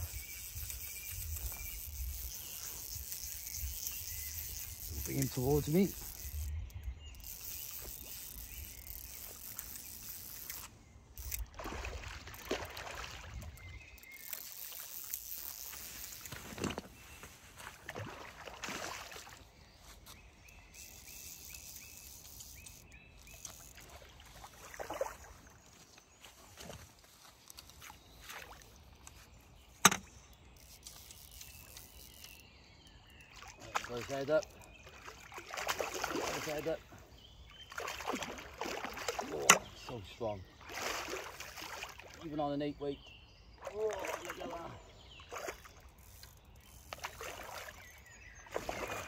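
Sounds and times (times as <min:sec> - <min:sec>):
fish splashing in water: 0:11.4 - 0:16.9, 0:17.7 - 0:19.5, 0:33.3 - 0:36.8, 0:37.6 - 0:39.8, 0:40.6 - 0:42.2, 0:43.6 - 0:44.6, 0:46.9 - 0:49.0.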